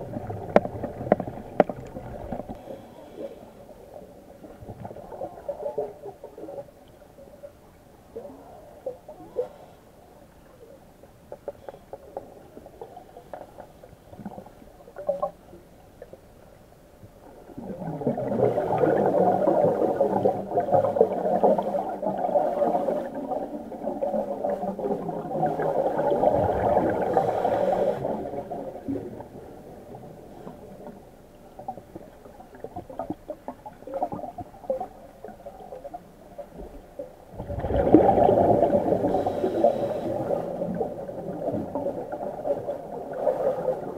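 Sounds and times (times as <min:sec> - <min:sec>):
underwater bubbles gurgling: 0:00.0 - 0:43.9
faint clicks: 0:00.2 - 0:02.6.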